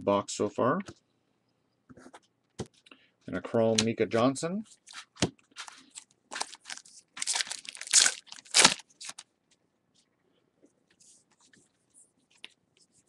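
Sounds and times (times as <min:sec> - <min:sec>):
foil wrapper tearing and crinkling: 0:05.6 - 0:09.2.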